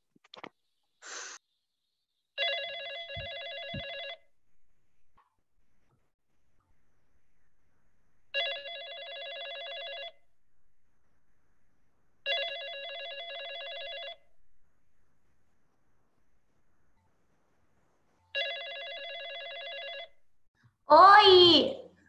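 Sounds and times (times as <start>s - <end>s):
telephone ringing: 2.4s - 4.4s, 8.3s - 10.3s, 12.2s - 14.4s, 18.2s - 20.3s.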